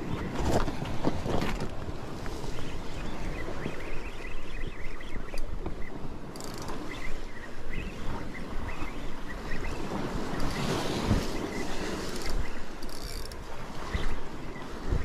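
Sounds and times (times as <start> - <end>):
wind buffeting microphone: 0.0 - 15.0
surf washing against rocks: 9.7 - 15.0.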